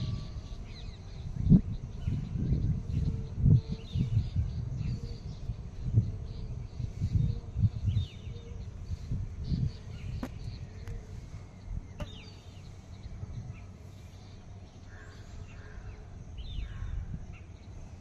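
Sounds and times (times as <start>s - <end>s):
small birds chirping: 0.0s - 18.0s
low bumps on microphone: 10.1s - 10.6s, 12.0s - 12.2s.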